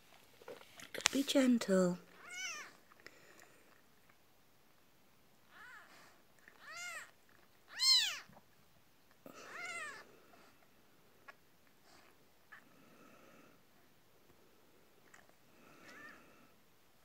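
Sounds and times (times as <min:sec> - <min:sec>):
kitten mewing: 0:07.7 - 0:08.3.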